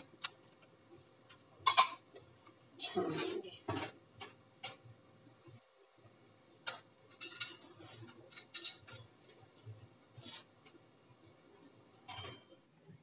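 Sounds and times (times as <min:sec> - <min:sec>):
kitchenware clicking and clinking: 0:01.6 - 0:02.0, 0:06.6 - 0:09.1, 0:11.9 - 0:12.6.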